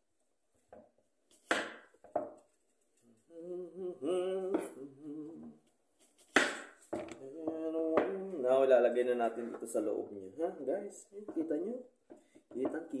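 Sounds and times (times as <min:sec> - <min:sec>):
person humming a tune: 0:03.1 - 0:05.6, 0:07.1 - 0:08.6.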